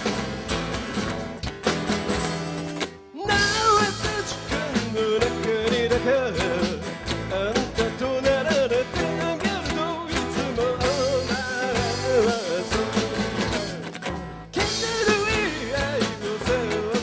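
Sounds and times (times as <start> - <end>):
live rock band playing: 0.0 - 17.0
strummed acoustic guitars: 0.0 - 17.0
man singing lead vocal: 3.1 - 13.9, 14.5 - 17.0.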